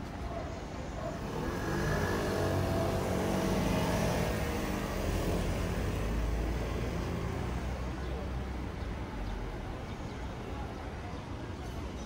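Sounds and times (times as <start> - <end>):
low rumble of traffic: 0.0 - 12.0
motor vehicle passing: 1.1 - 7.9.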